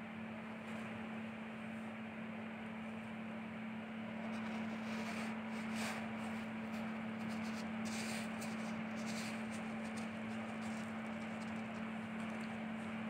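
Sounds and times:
steady hum: 0.0s - 13.0s
scoop scraping cat litter: 4.2s - 12.6s.

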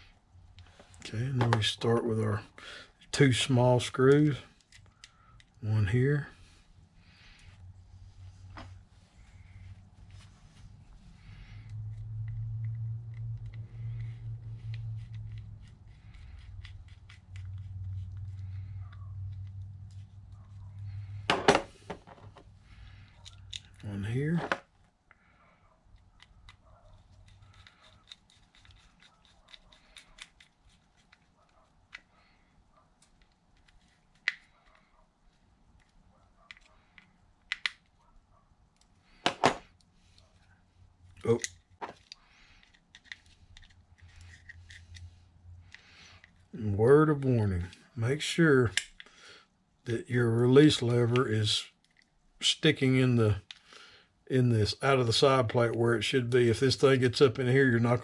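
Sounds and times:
low steady hum: 0.0s - 53.6s
screwdriver ticking and scraping on screws: 11.7s - 20.0s, 25.9s - 32.1s, 41.3s - 45.0s.

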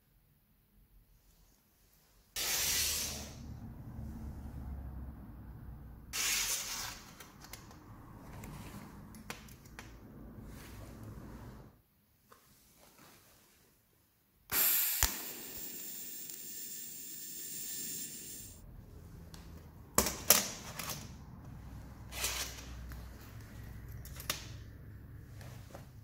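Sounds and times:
welding arc hissing and buzzing: 14.5s - 18.6s.

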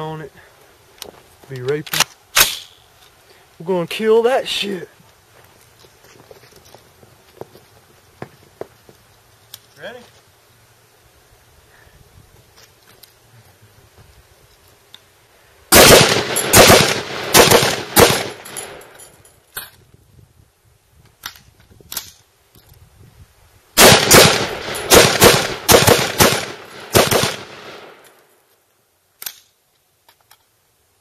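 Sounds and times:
rifle shots with echo: 15.7s - 19.0s, 23.8s - 28.0s.

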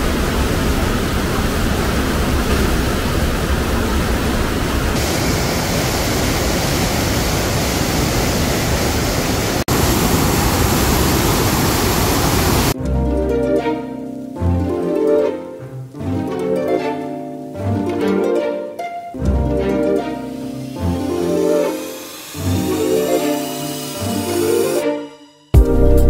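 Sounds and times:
mountain stream rushing: 0.0s - 12.8s, 13.4s - 24.8s
plucked string music: 12.8s - 26.0s.

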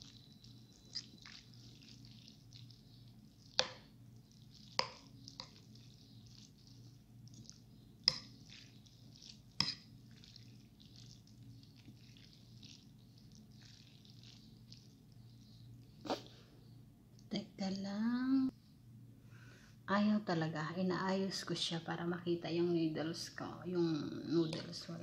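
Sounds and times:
wet chewing and slurping: 0.0s - 16.3s
low steady hum: 0.0s - 25.0s
fork clinking against bowl: 9.6s - 9.9s.

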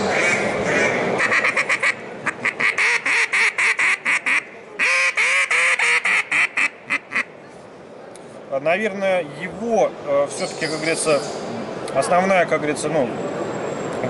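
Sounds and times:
duck call quacks: 0.1s - 7.3s.

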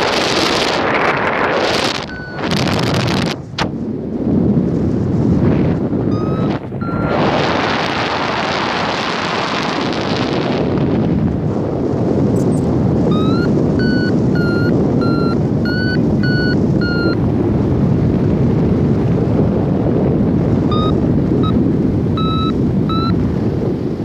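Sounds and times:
wind rushing over microphone: 0.0s - 24.0s
variometer beeping: 1.8s - 2.8s, 6.0s - 7.2s, 12.4s - 17.3s, 20.6s - 23.3s.

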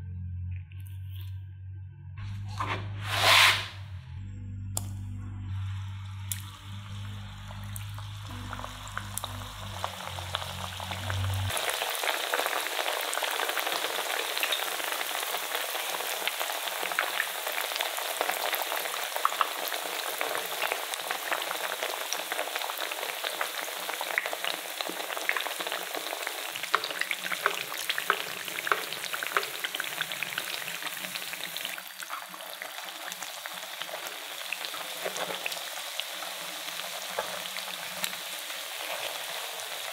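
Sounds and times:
low hum: 0.0s - 11.5s
patties sizzling in hot oil: 5.7s - 39.9s.

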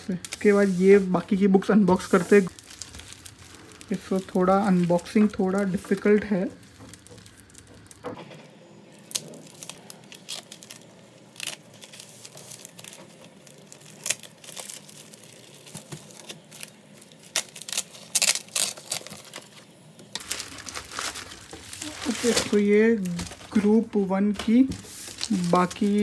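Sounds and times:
plastic wrapping crinkling and tearing: 0.0s - 26.0s
scissors cutting packing tape: 15.6s - 19.6s.

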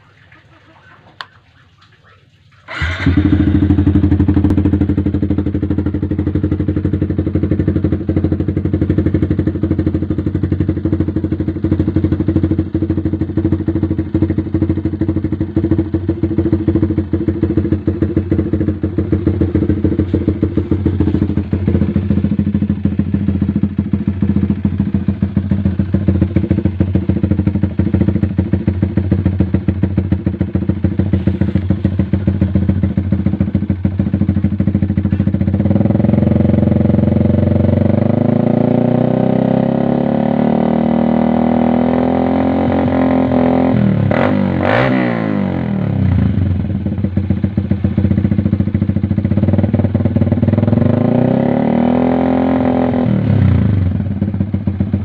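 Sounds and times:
motorcycle engine idling: 2.7s - 38.8s, 45.5s - 51.0s, 52.9s - 55.0s.

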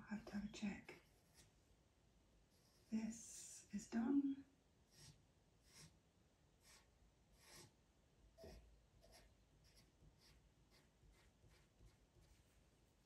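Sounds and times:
pencil scratching on paper: 0.2s - 1.6s, 4.9s - 6.0s, 6.6s - 7.8s, 8.4s - 12.6s.

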